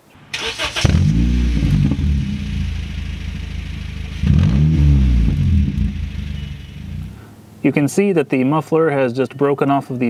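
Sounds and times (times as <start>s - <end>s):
car engine revving and idling: 0.0s - 7.4s.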